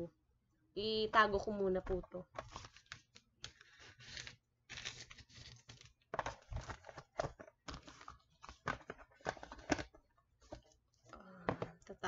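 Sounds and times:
packaging rustling and crinkling: 2.3s - 11.2s.

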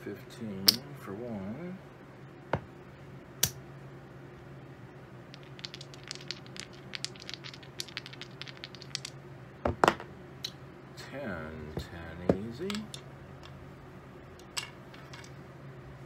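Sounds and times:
dice rattling in hand: 5.3s - 9.2s, 12.6s - 13.6s
dice landing on table: 5.4s - 10.1s.

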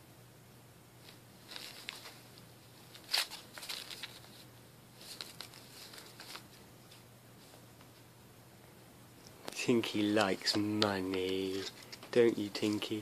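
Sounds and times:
paper banknote rustling: 1.0s - 6.6s, 9.9s - 13.0s.

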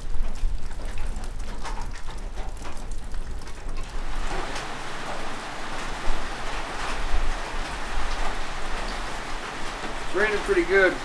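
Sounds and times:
heavy rain: 2.6s - 11.0s.

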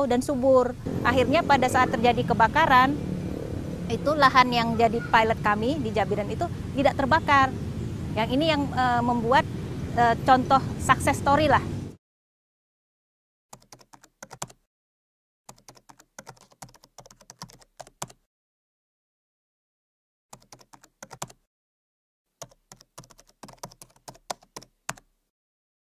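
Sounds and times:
keyboard typing: 13.5s - 14.6s, 15.5s - 18.2s, 20.3s - 21.4s, 22.4s - 25.1s.

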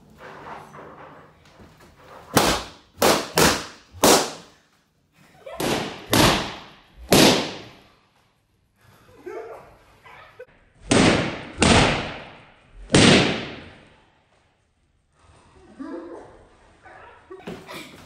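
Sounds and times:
balloons popping: 2.3s - 4.6s, 5.6s - 7.8s.

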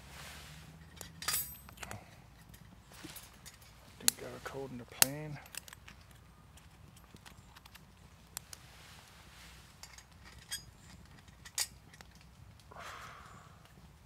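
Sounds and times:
soft rustle: 0.0s - 14.0s
wood fire crackling: 1.6s - 14.0s.

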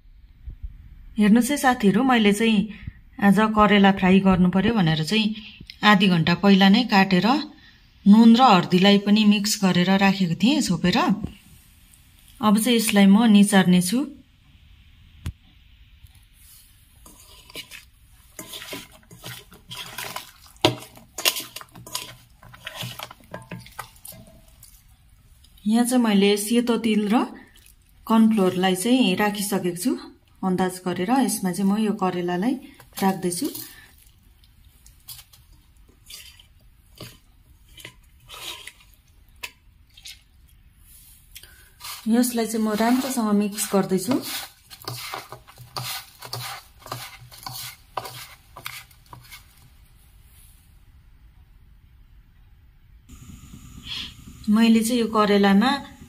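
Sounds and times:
wet handling by hand: 16.0s - 25.6s, 32.8s - 40.6s, 41.2s - 49.8s.

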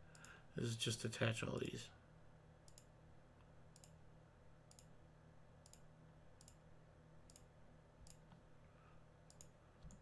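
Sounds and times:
low steady hum: 0.0s - 10.0s
faint computer mouse clicks: 0.1s - 0.4s, 2.7s - 2.9s, 3.8s - 4.0s, 4.7s - 4.9s, 5.6s - 6.6s, 7.3s - 8.4s, 9.3s - 10.0s.

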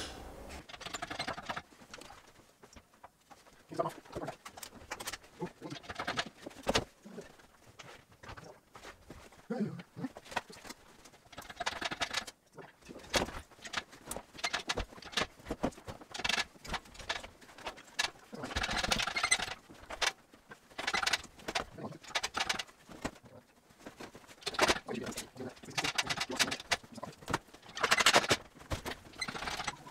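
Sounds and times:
grinding rattling: 23.8s - 29.9s.

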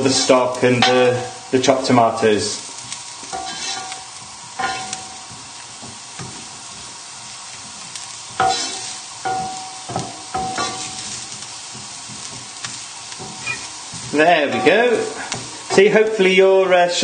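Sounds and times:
food sizzling in a frying pan: 0.0s - 17.0s
spatula scraping and knocking pan: 2.8s - 16.2s.

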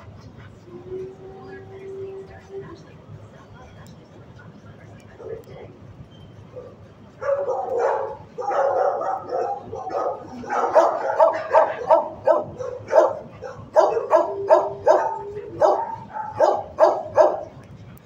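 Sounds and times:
dogs barking: 6.5s - 17.6s
dog drawn-out call: 6.6s - 17.5s.

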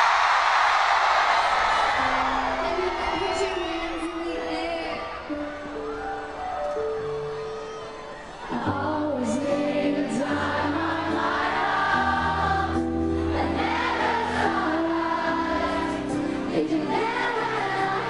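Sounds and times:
person singing: 2.5s - 5.9s, 8.5s - 13.8s, 14.4s - 18.0s.

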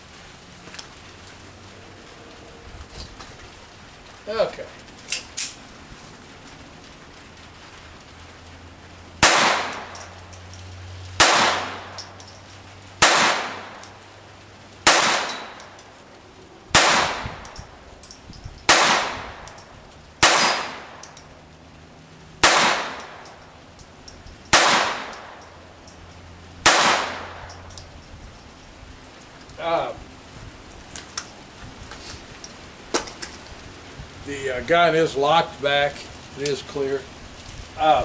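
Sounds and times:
pistol gunshots with echo: 9.2s - 10.1s, 11.2s - 12.1s, 13.0s - 13.9s, 14.8s - 15.8s, 16.7s - 17.6s, 18.7s - 19.6s, 20.2s - 21.1s, 22.4s - 23.3s, 24.5s - 25.4s, 26.6s - 27.4s.

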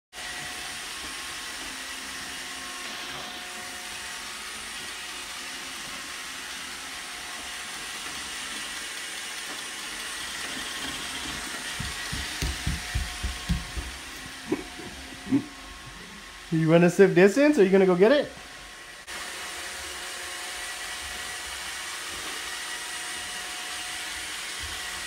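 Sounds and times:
robot vacuum running: 0.2s - 16.5s
low thumps: 11.8s - 14.5s.

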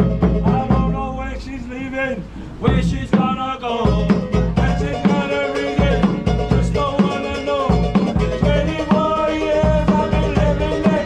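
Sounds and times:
skin drum beaten with sticks: 0.0s - 1.0s, 2.7s - 11.0s
man singing: 0.4s - 11.0s
strummed ukulele: 2.7s - 11.0s.

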